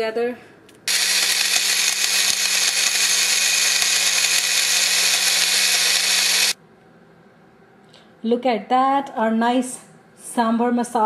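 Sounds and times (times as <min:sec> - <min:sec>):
blender motor whirring: 0:00.9 - 0:06.6.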